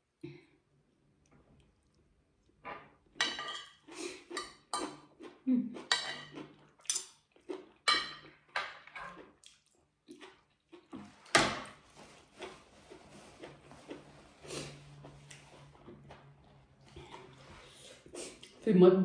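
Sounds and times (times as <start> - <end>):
cutlery clinking on plate: 3.2 - 3.8, 5.9 - 7.2.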